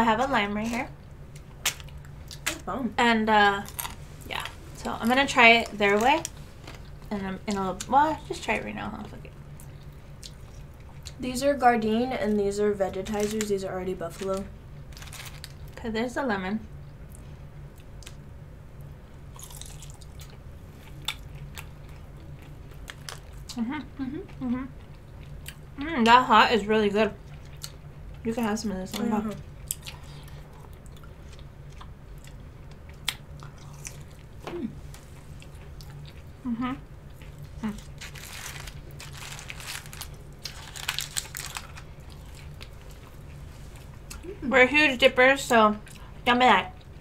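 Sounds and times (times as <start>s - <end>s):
low steady hum: 0.0s - 47.0s
crunchy chewing: 19.3s - 23.6s, 28.9s - 36.4s, 37.0s - 44.3s.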